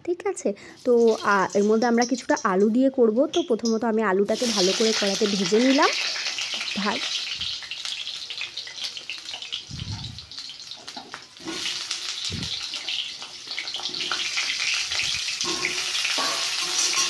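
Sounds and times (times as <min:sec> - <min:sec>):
potatoes frying in oil: 0:00.6 - 0:17.0.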